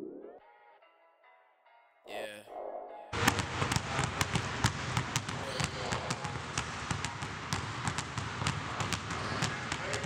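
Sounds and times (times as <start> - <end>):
basketballs bouncing on wooden floor: 3.2 - 10.0.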